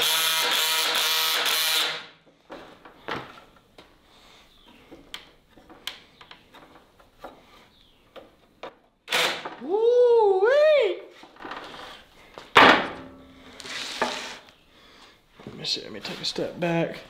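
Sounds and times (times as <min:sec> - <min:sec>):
cordless drill driving screw: 0:00.0 - 0:02.1, 0:13.6 - 0:14.5.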